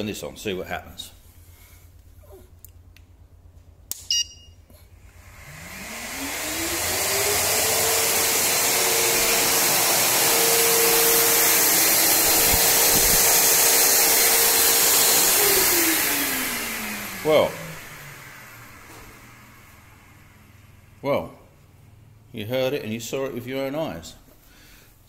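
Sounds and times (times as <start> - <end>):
short beep: 4.0 - 4.7
vacuum cleaner motor whine: 5.0 - 21.0.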